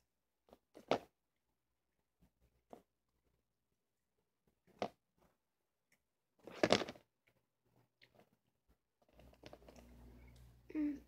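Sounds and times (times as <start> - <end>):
low steady hum: 9.2 - 11.0.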